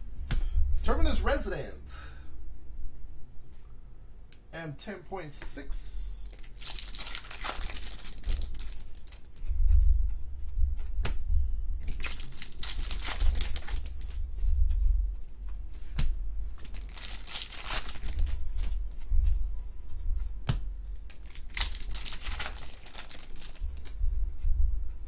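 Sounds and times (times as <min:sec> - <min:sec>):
foil wrappers crinkling and tearing: 0:06.3 - 0:09.3, 0:11.8 - 0:14.2, 0:16.6 - 0:18.7, 0:21.1 - 0:24.0.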